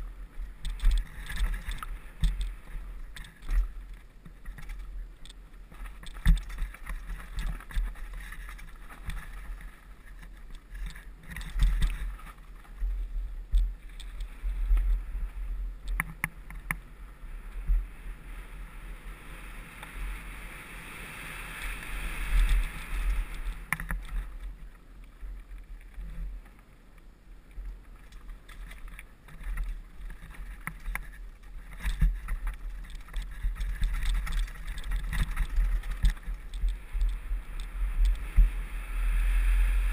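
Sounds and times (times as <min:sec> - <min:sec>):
bike knocking and rattling: 0:00.0 - 0:15.1, 0:27.8 - 0:38.6
bike tyres rolling on gravel: 0:00.0 - 0:39.9
wind rumbling on microphone: 0:00.0 - 0:39.9.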